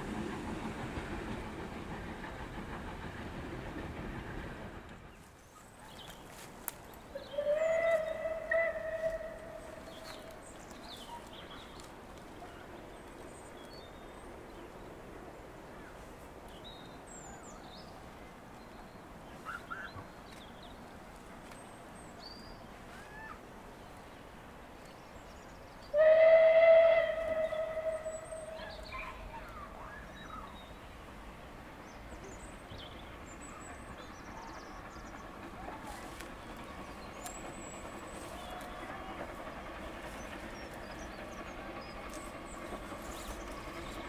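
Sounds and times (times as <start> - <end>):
steam locomotive whistle: 7.3 - 9.8, 25.9 - 28.8.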